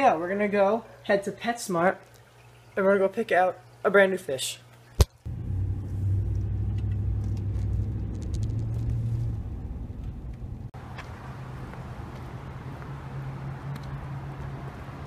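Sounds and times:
low steady hum: 0:04.8 - 0:10.7
car engine and road rumble: 0:05.3 - 0:15.0.

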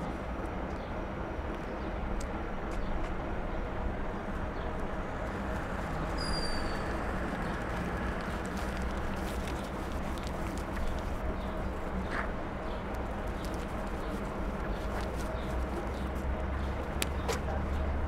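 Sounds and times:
bus idling nearby: 0:00.0 - 0:18.0
city traffic rumble: 0:00.0 - 0:18.0
short high squeal: 0:06.2 - 0:07.0.

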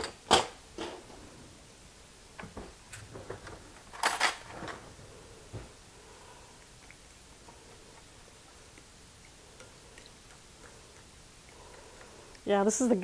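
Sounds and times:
kitchen items clicking and clinking: 0:02.9 - 0:05.0.

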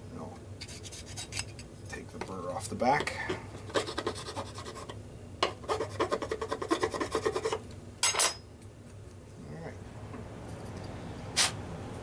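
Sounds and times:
file rasping on metal: 0:00.6 - 0:01.5, 0:03.7 - 0:05.0, 0:05.6 - 0:07.6.

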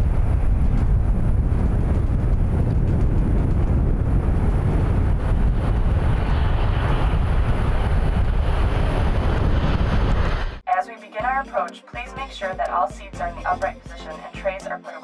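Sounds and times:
jet engines rumbling: 0:00.0 - 0:10.6.

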